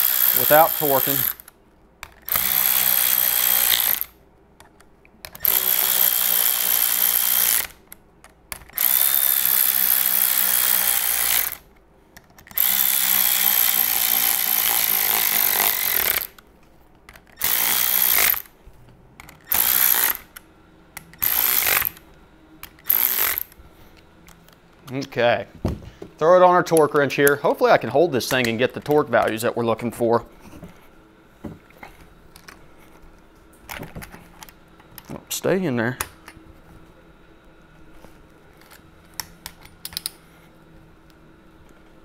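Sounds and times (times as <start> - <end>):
electric ratchet whirring: 0.0 - 4.2, 5.2 - 11.7, 12.4 - 16.4, 17.1 - 18.6, 19.2 - 20.4, 21.0 - 23.6.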